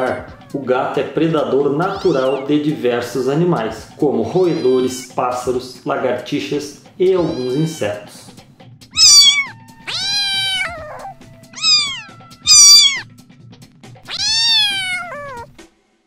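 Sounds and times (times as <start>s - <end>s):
cat meowing: 0.0s - 0.6s, 4.4s - 5.2s, 7.2s - 8.0s, 9.0s - 13.1s, 14.0s - 15.6s.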